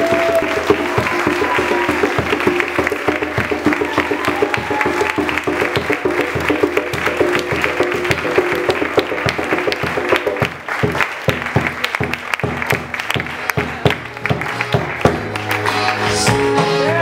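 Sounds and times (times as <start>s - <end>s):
applause: 0.0s - 16.7s
plucked string music with beat: 13.7s - 17.0s.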